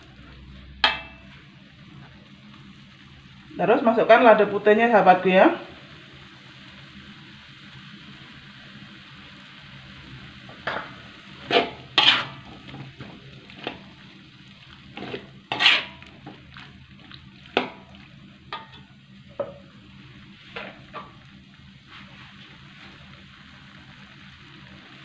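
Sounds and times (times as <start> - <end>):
faint sizzle: 0.0 - 25.0
metal spatula scraping a wok: 0.6 - 1.4, 10.7 - 14.0, 14.8 - 16.5, 20.4 - 21.2.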